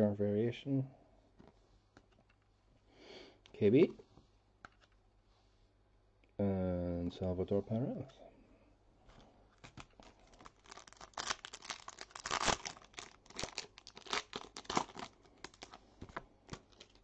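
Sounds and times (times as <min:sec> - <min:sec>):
foil wrapper tearing and crinkling: 0:09.6 - 0:15.8, 0:16.5 - 0:17.0.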